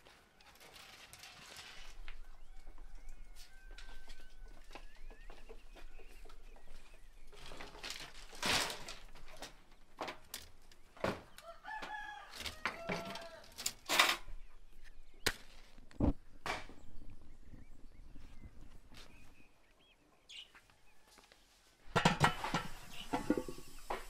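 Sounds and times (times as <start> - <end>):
dry twigs crackling: 7.2 - 10.8.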